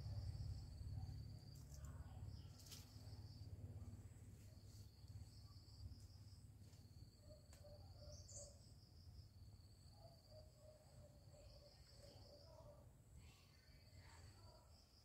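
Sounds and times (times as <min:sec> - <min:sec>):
faint low rumble: 0:00.0 - 0:07.5
crickets trilling: 0:00.0 - 0:15.0
bird chirp: 0:07.2 - 0:08.8.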